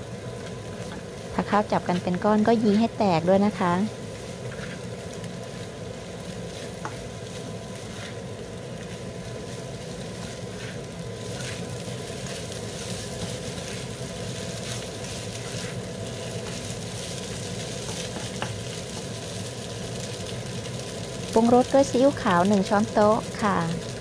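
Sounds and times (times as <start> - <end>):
rice sizzling in a wok: 0.0 - 24.0
spatula scraping a wok: 4.2 - 5.1, 6.2 - 19.1.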